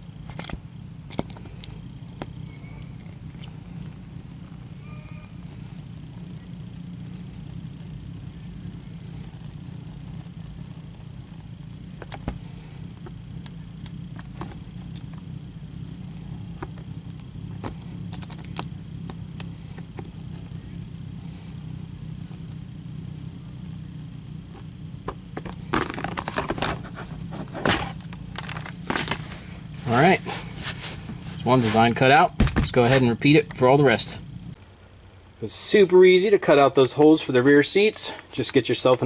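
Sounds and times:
steady low hum: 0:00.0 - 0:39.0
crackling and knocks: 0:05.8 - 0:20.5, 0:24.5 - 0:31.4, 0:32.3 - 0:33.0.

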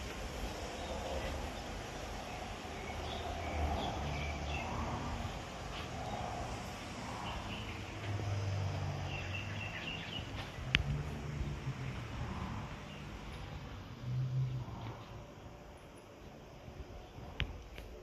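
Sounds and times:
small birds chirping: 0:00.6 - 0:13.8.

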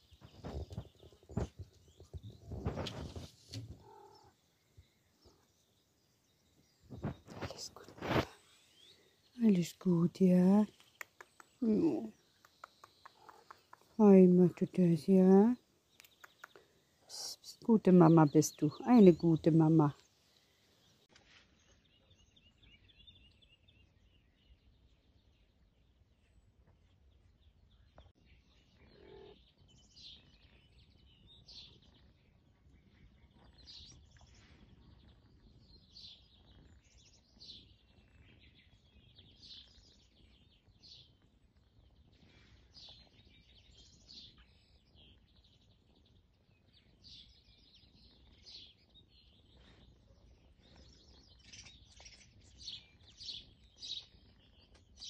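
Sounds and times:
outdoor background hiss: 0:00.0 - 0:21.4
faint bird chirps: 0:00.0 - 0:55.0.

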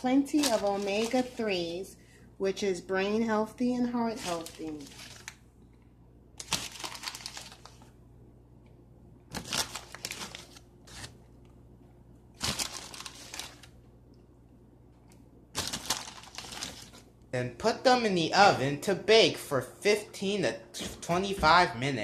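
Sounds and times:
plastic bag crinkling: 0:00.1 - 0:01.8, 0:04.1 - 0:05.4, 0:06.4 - 0:07.9, 0:09.3 - 0:11.2, 0:12.4 - 0:13.8, 0:15.6 - 0:17.1.

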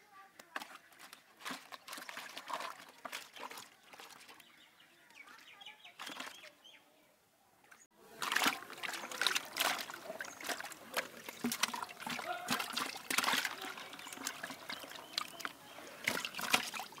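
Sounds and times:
fish splashing in a bucket: 0:00.4 - 0:04.4, 0:06.0 - 0:06.5, 0:08.0 - 0:17.0.

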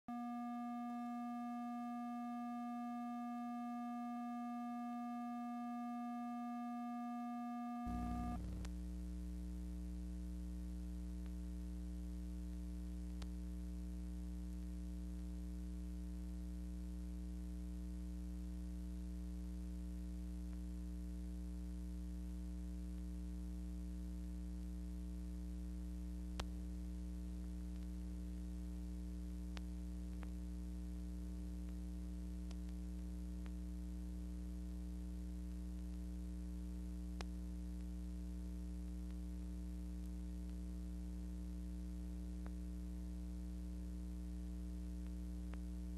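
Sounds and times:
steady electronic tone: 0:00.1 - 0:08.7
low steady hum: 0:00.1 - 0:45.9.

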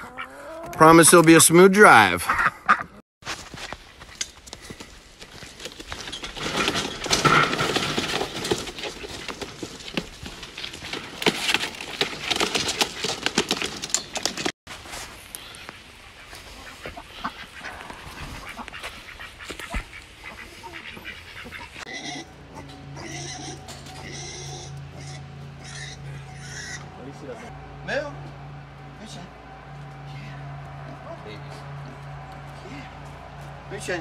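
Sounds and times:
crate clattering and crunching: 0:05.2 - 0:14.5
ducks quacking: 0:15.4 - 0:27.5.

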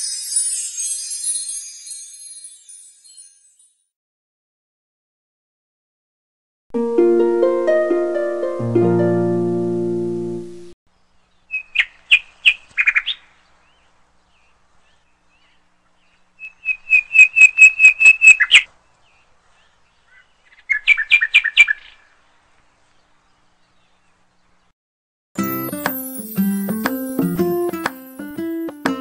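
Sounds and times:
bird chirping: 0:10.9 - 0:24.7.

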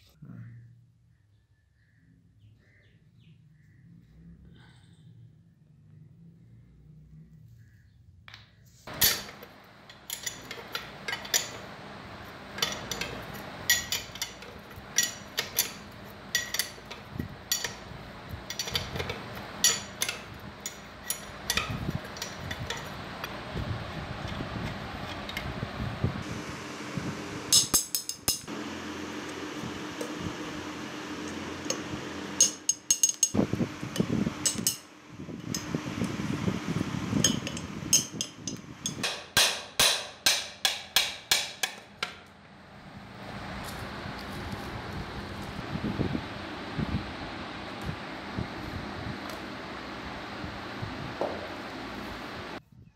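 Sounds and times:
steady background hum: 0:00.0 - 0:52.6
spanner clinking on metal: 0:08.9 - 0:11.7, 0:12.5 - 0:23.5, 0:27.5 - 0:28.5, 0:31.3 - 0:34.9, 0:37.2 - 0:42.2.

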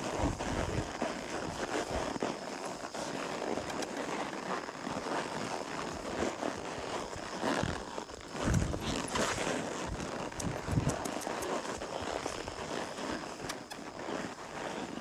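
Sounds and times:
horse hooves on trail: 0:00.0 - 0:15.0.

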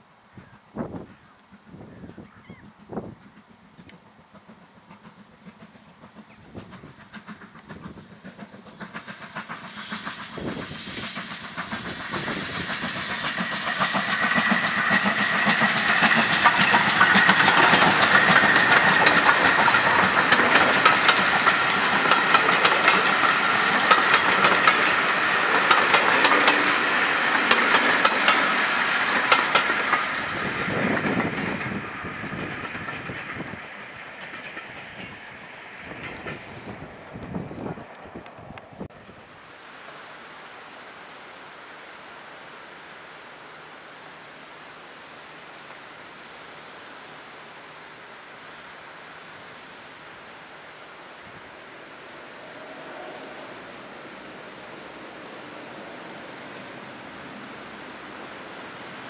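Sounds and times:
steam train passing: 0:00.0 - 0:59.0
wheels clicking over rail joints: 0:10.3 - 0:30.1.

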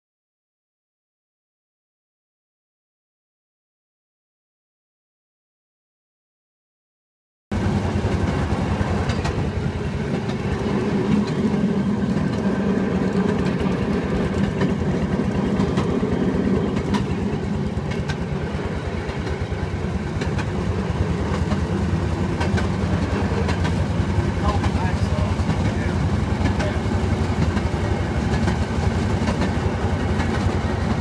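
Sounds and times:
track clicks: 0:18.9 - 0:31.0.

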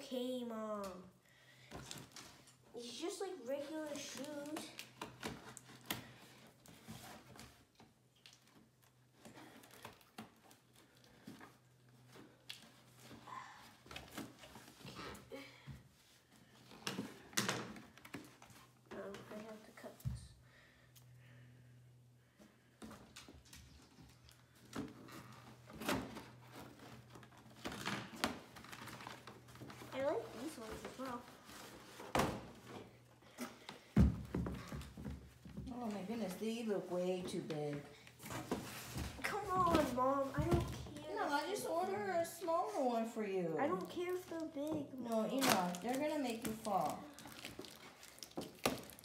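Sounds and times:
cardboard rustling: 0:33.5 - 0:42.1.

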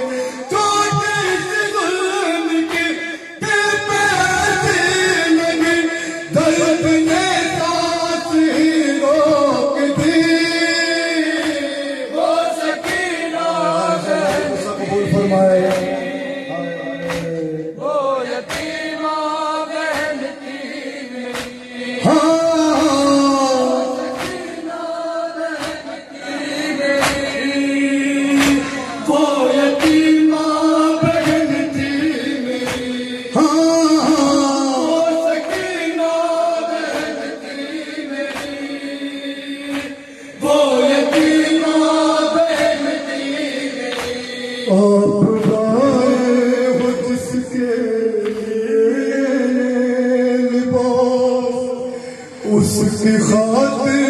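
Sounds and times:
men chanting in unison: 0:00.0 - 0:54.0
hands slapping chests: 0:11.3 - 0:11.7, 0:12.6 - 0:13.4, 0:14.1 - 0:14.8, 0:15.6 - 0:16.2, 0:17.0 - 0:17.4, 0:18.4 - 0:19.0, 0:19.7 - 0:20.7, 0:21.3 - 0:21.7, 0:24.1 - 0:24.8, 0:25.4 - 0:27.6, 0:28.2 - 0:28.8, 0:29.7 - 0:33.0, 0:35.3 - 0:38.9, 0:39.6 - 0:40.0, 0:40.9 - 0:44.4, 0:45.4 - 0:46.0, 0:48.2 - 0:48.6.

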